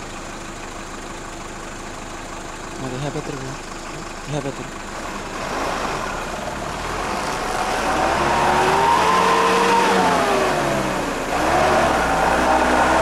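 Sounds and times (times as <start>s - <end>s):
heavy vehicle engine revving: 2.8s - 13.0s.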